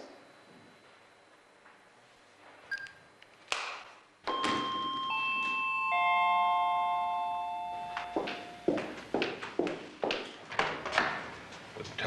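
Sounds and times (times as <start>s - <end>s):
doorbell chime: 4.3s - 8.8s.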